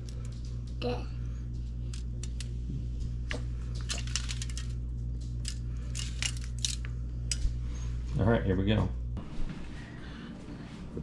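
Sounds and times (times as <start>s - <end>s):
steady low hum: 0.0s - 11.0s
crinkling on aluminium foil: 3.7s - 7.4s.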